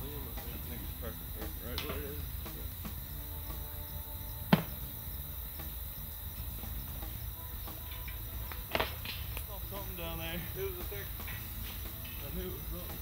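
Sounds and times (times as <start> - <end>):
insects chirping: 0.0 - 13.0
sharp knock: 4.5 - 4.9.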